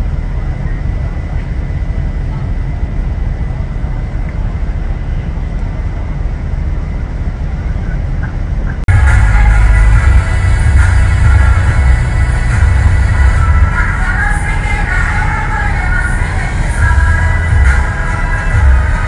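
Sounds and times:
low rumble: 0.0 - 19.0
loud music: 8.9 - 19.0.

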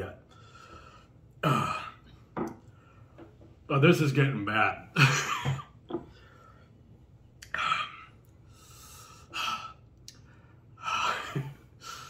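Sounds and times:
man breathing hard: 7.8 - 12.0.

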